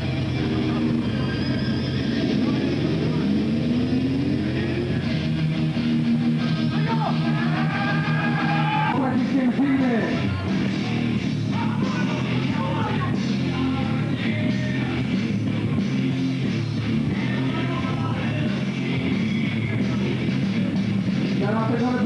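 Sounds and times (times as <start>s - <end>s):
sliding guitar notes: 0.0s - 8.9s
rock music with guitar and singing: 0.0s - 22.0s.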